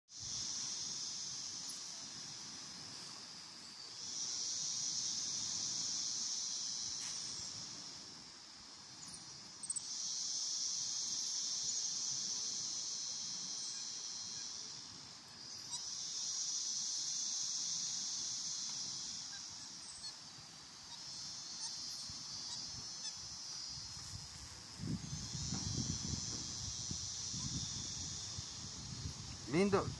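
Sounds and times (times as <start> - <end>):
insects buzzing: 0.1 - 29.9.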